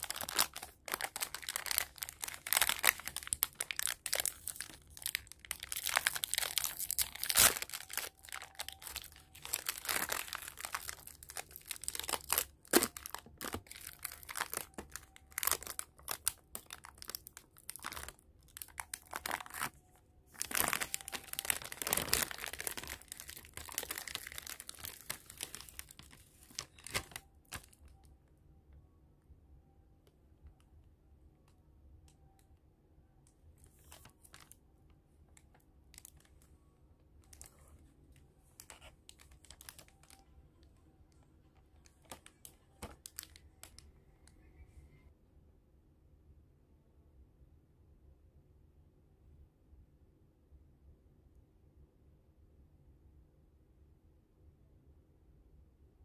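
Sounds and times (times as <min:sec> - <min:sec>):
foil wrapper crinkling: 0:00.0 - 0:28.0, 0:38.6 - 0:40.3, 0:41.8 - 0:43.8.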